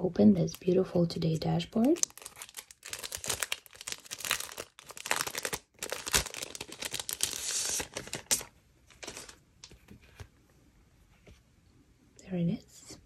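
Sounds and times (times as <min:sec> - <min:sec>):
plastic packaging crinkling: 0:01.7 - 0:09.4.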